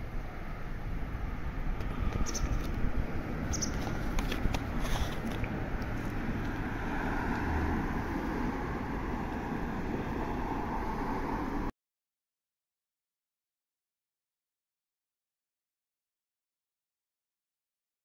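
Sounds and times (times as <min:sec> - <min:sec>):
vehicle rumble and hiss: 0:00.0 - 0:11.7.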